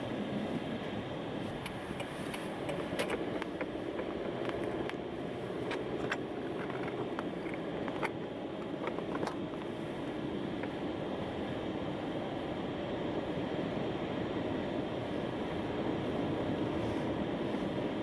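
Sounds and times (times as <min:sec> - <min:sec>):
tyre and engine noise: 0:00.0 - 0:18.0
sharp clicks and ticks: 0:01.6 - 0:05.0, 0:05.6 - 0:09.7.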